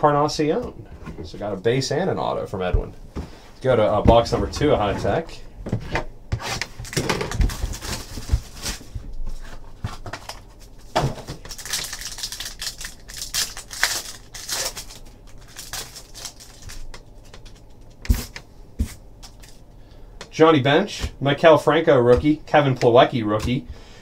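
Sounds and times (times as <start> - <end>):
foil wrapper crinkling: 6.6 - 18.4.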